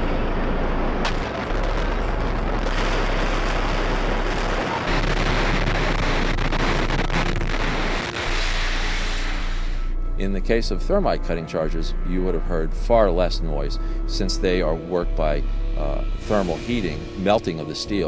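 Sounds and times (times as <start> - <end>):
loud rushing roar: 0.0 - 10.2
low hum: 0.0 - 18.0.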